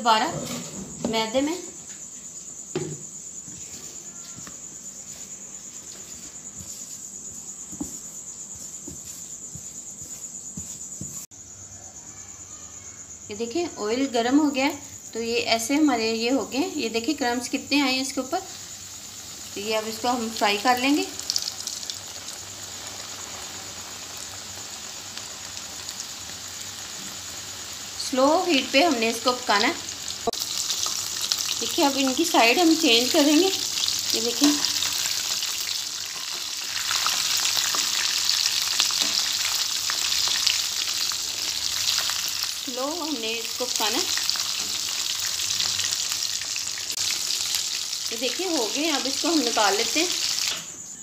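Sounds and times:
hands patting chicken in flour: 6.0s - 11.3s
chicken deep-frying in oil: 15.3s - 50.7s.

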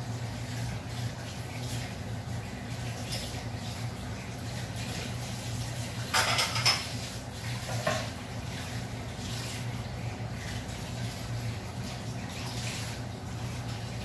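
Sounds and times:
pots and dishes clattering: 6.0s - 8.2s.

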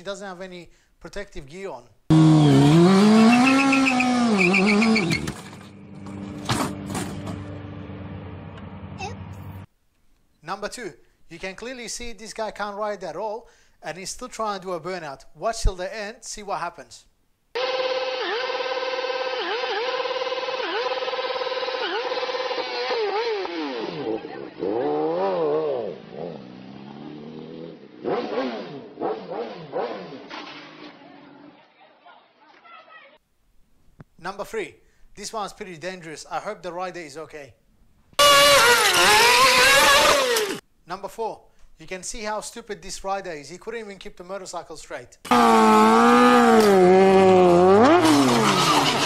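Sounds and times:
motorcycle crashing and clattering: 2.1s - 7.8s, 28.5s - 31.1s, 38.2s - 40.6s, 45.3s - 49.0s
motorcycle engine revving: 2.1s - 8.6s, 17.6s - 31.1s, 38.2s - 40.6s, 45.3s - 49.0s
people talking: 24.2s - 24.8s, 34.2s - 37.6s, 40.9s - 45.2s.

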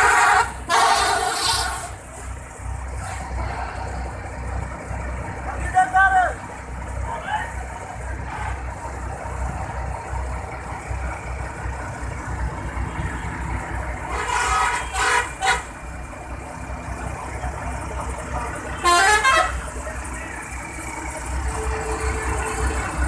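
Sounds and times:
diesel engine idling: 0.0s - 23.0s
vehicle horn honking: 14.1s - 15.7s, 18.7s - 19.7s, 21.6s - 23.0s.

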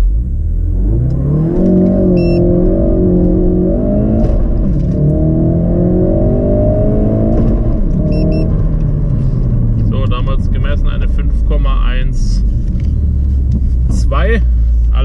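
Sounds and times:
car engine revving at full throttle: 0.0s - 11.6s
engine pitch dropping at upshifts: 0.0s - 11.6s.

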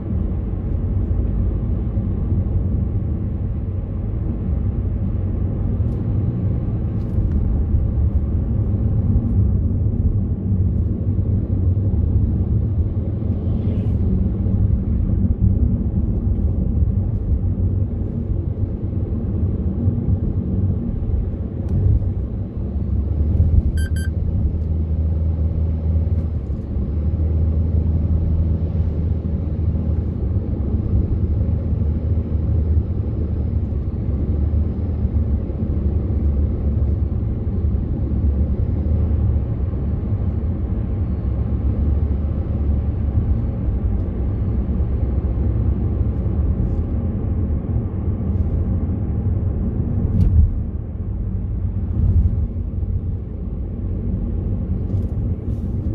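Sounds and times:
car cabin road rumble: 0.0s - 55.9s
short electronic beep: 23.8s - 24.2s.

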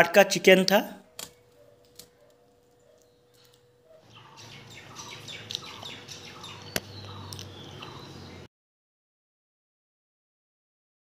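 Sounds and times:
birds chirping: 0.4s - 8.5s.

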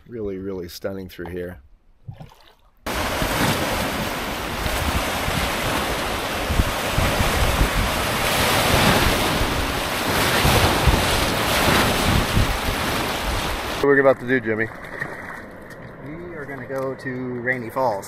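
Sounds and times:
wind noise on microphone: 2.9s - 13.8s
rapids rushing: 2.9s - 13.9s.

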